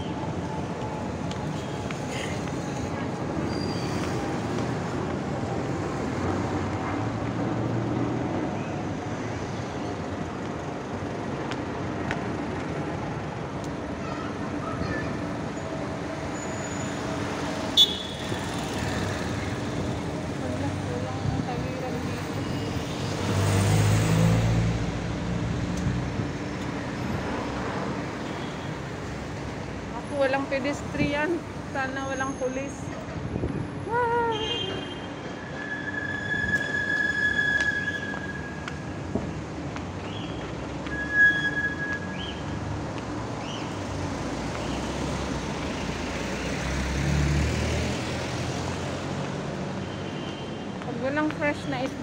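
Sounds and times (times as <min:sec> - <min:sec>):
traffic: 0:00.0 - 0:52.0
car passing close by: 0:23.0 - 0:25.4, 0:46.0 - 0:49.2.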